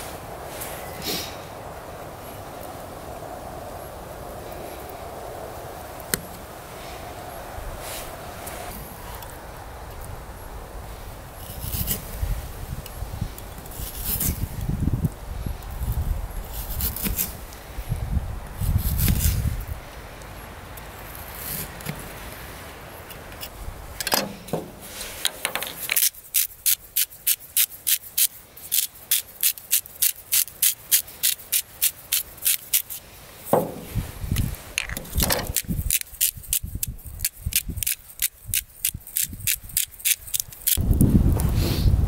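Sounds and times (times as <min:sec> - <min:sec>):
low rush: 0:00.0 - 0:25.3.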